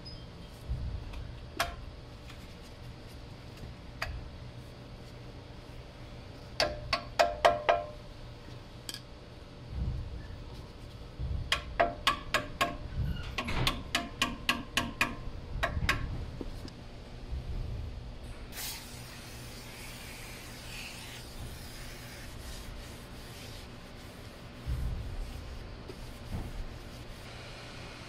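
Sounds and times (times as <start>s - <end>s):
aerosol spray hissing: 18.5s - 24.3s
paper towel rubbing: 19.1s - 27.3s.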